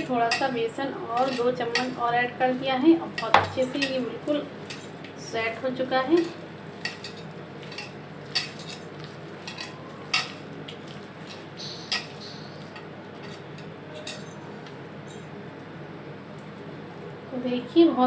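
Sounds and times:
bangles clinking against bowl: 0:00.0 - 0:00.6, 0:01.2 - 0:02.1, 0:03.1 - 0:05.0, 0:06.1 - 0:10.4, 0:11.3 - 0:15.3
hand mixing batter rustling: 0:00.0 - 0:11.6.

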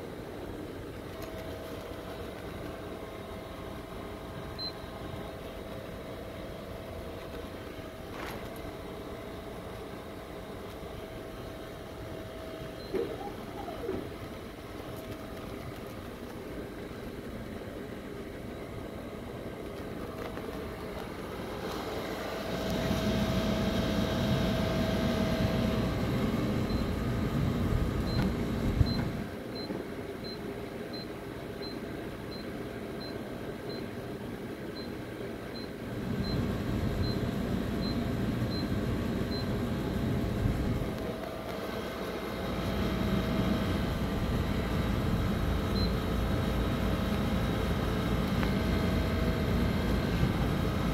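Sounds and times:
vending machine motors whining: 0:19.4 - 0:29.4.

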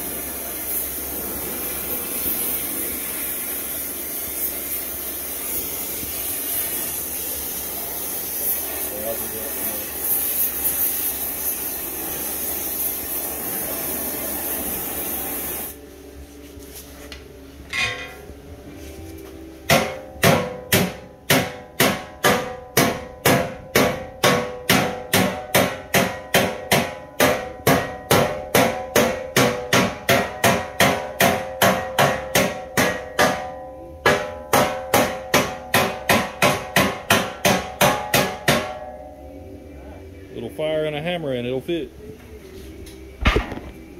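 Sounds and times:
torch hissing: 0:00.0 - 0:15.8
metal clank: 0:17.7 - 0:18.3
hammer ringing on hot steel: 0:19.7 - 0:39.4.

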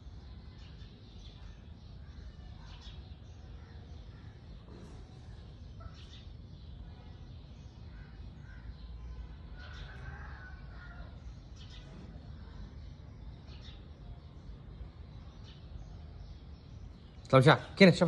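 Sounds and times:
low steady rumble: 0:00.0 - 0:17.8
birds chirping: 0:00.0 - 0:18.0.

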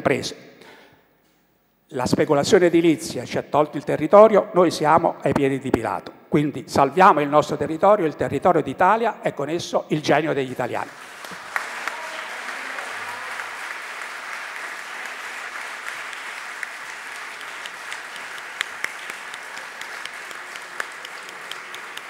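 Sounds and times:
audience applauding: 0:10.9 - 0:22.0.

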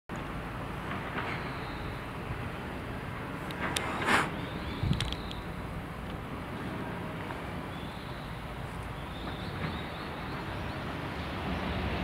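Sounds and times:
wind: 0:00.1 - 0:12.0
approaching electric train: 0:00.2 - 0:12.0.

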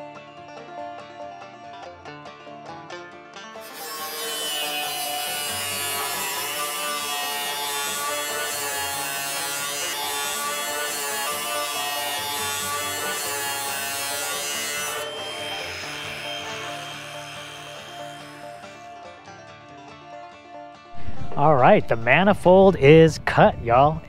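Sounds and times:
background music: 0:00.0 - 0:24.0
angle grinder cutting steel: 0:03.6 - 0:19.0.

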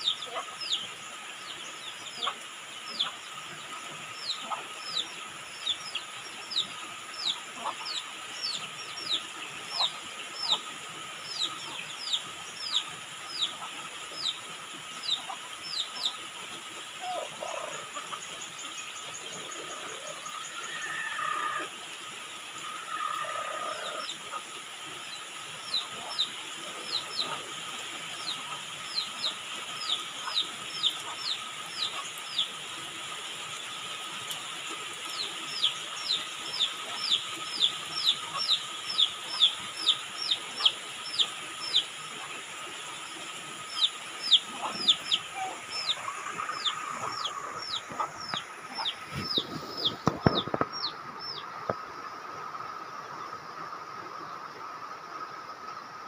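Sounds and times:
steady rainfall: 0:00.0 - 0:56.0
bird chirping: 0:35.1 - 0:41.9, 0:43.0 - 0:51.5.

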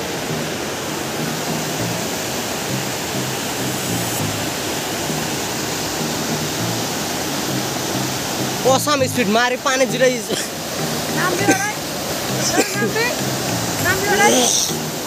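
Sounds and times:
low background music: 0:00.0 - 0:15.0
water rushing over rocks: 0:00.0 - 0:15.0.

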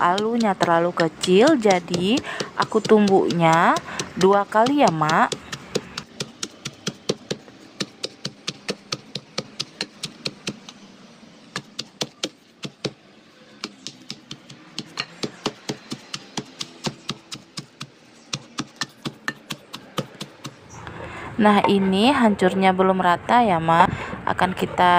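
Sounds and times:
wooden pestle pounding in mortar: 0:00.0 - 0:10.7, 0:13.6 - 0:20.6.

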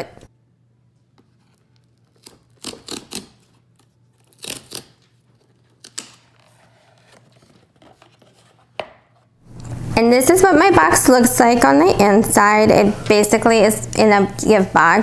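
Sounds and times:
cardboard scraping and tearing: 0:01.4 - 0:08.8
cardboard lid rustling: 0:06.2 - 0:09.3.

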